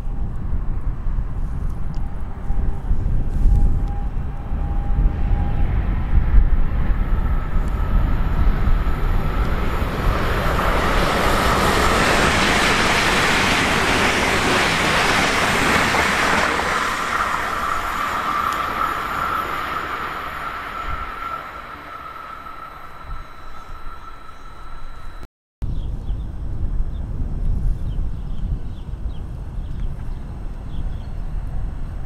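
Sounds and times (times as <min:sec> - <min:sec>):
steady high whine: 0:00.0 - 0:25.3
train rushing past: 0:00.5 - 0:25.3.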